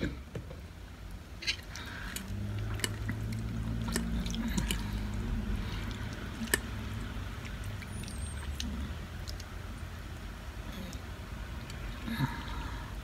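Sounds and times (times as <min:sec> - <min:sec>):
low steady hum: 0:00.0 - 0:13.0
chewing: 0:01.4 - 0:09.9.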